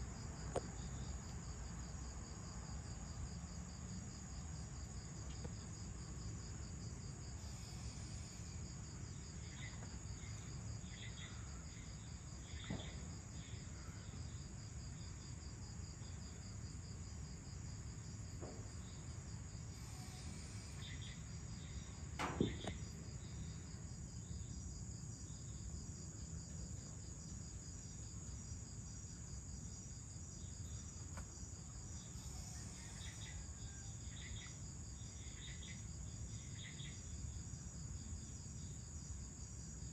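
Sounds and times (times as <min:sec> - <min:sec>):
crickets trilling: 0:00.0 - 0:39.9
short insect chirps: 0:19.7 - 0:23.7.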